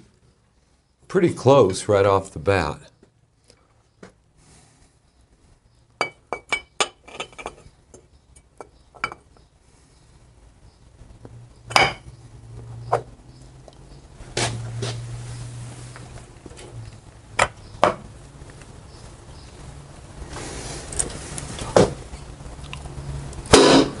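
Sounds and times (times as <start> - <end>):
sharp metallic knocks: 23.5 - 24.0.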